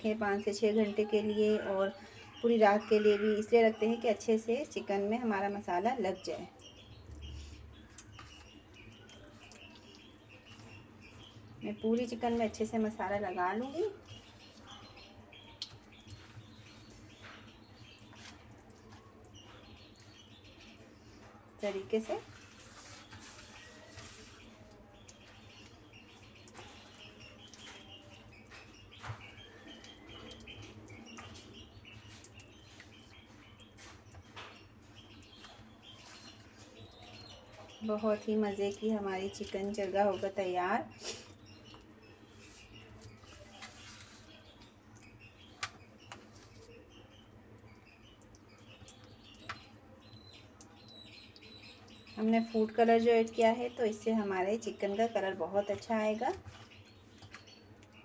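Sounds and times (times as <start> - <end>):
faint bird chirping: 0.0 - 58.0
wet squelches of hands rubbing marinade: 2.7 - 49.8
hand rubbing marinade into chicken: 21.8 - 28.9, 41.8 - 47.1.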